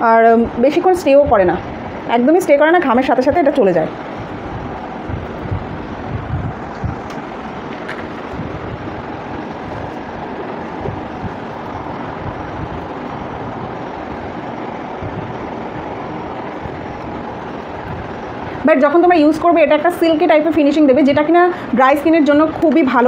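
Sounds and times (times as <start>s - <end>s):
steady rushing noise: 0.0s - 23.0s.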